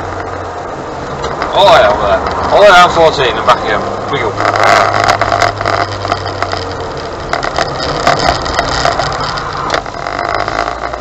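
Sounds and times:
car engine running: 0.0s - 11.0s
road noise inside cabin: 0.0s - 11.0s
clicks and rattles: 4.4s - 11.0s.

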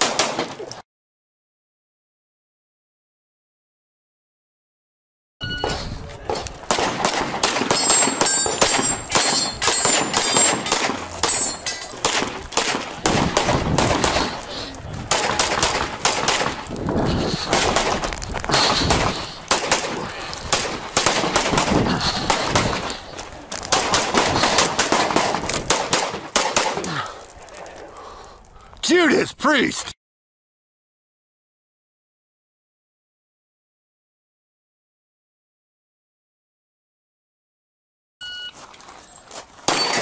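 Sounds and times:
handgun shots: 6.3s - 14.5s, 15.1s - 16.7s, 18.9s - 22.9s, 23.7s - 26.9s, 39.7s - 40.0s
metallic ringing of steel targets: 7.6s - 13.4s, 39.7s - 40.0s.

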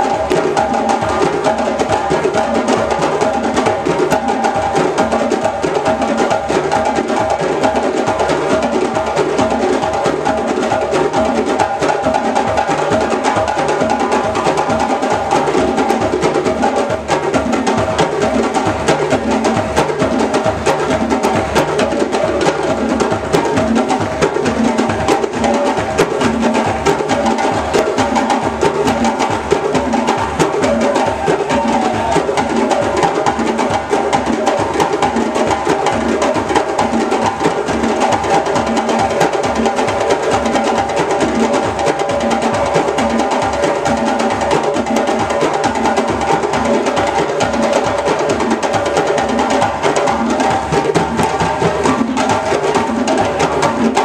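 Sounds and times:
drum ensemble playing: 0.0s - 54.0s.

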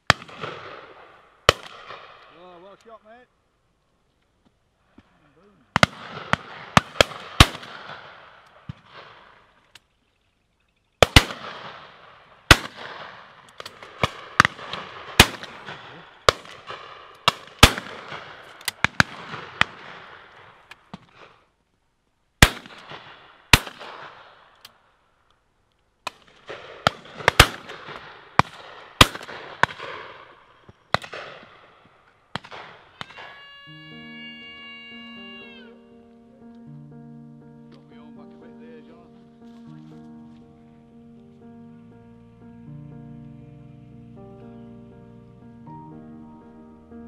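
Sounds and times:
shotguns firing with echo: 0.0s - 2.5s, 5.7s - 9.5s, 11.0s - 21.3s, 22.4s - 24.5s, 26.0s - 33.4s.

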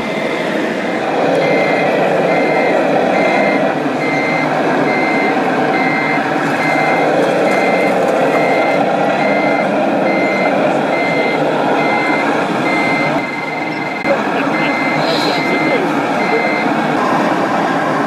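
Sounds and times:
continuous rumbling: 0.0s - 18.0s
high-pitched reversing beeps: 1.4s - 16.7s.

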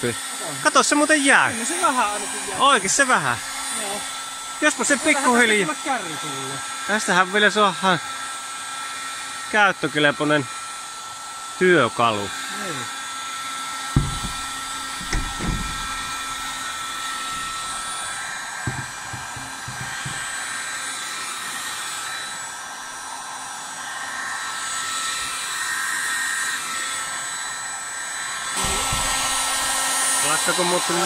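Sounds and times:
heat gun blowing: 0.0s - 31.0s
low thumps: 14.0s - 18.0s, 18.7s - 20.2s, 28.6s - 29.8s.

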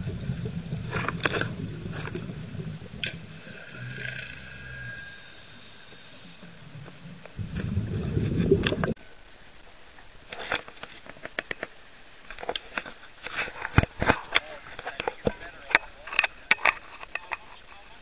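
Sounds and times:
choppy sea water splashing: 0.0s - 4.6s, 5.4s - 9.0s
muffled underwater rumble: 0.0s - 9.0s.

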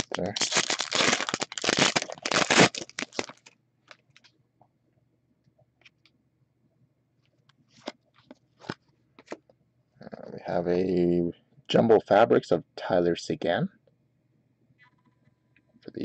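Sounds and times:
foil pack crinkling: 0.0s - 4.3s.

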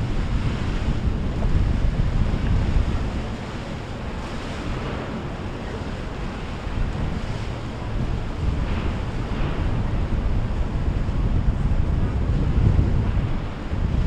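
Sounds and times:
rushing water from boat wakes: 0.0s - 14.0s
wind buffeting microphone: 0.0s - 14.0s.

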